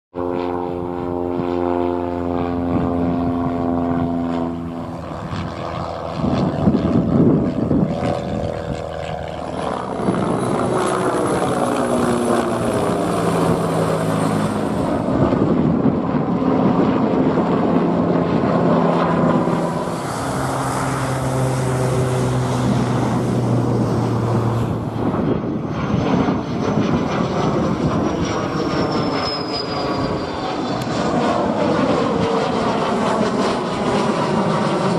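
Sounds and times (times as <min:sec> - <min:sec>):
propeller aircraft droning overhead: 0:00.1 - 0:34.9
high whine falling in pitch: 0:17.6 - 0:27.2, 0:27.8 - 0:31.6.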